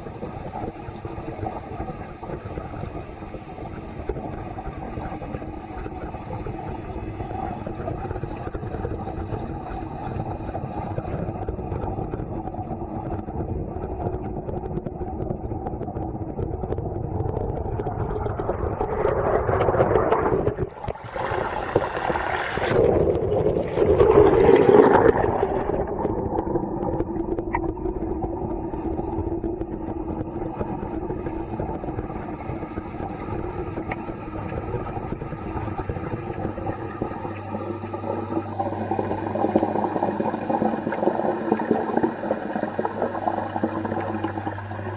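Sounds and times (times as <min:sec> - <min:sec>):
pond pump humming underwater: 0:00.0 - 0:44.9
water sloshing and splashing: 0:17.3 - 0:44.9.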